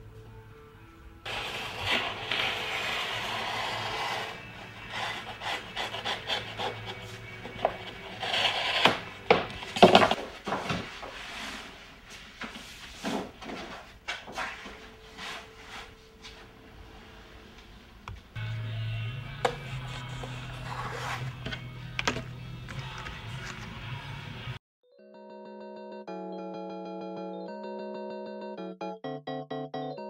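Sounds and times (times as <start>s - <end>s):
stiff paper rustling and sliding: 1.3s - 15.9s.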